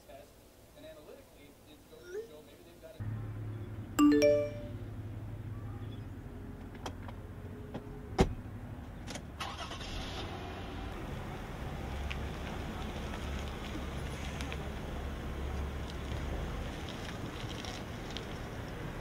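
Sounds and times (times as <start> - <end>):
three-note electronic chime: 4.0 - 4.8.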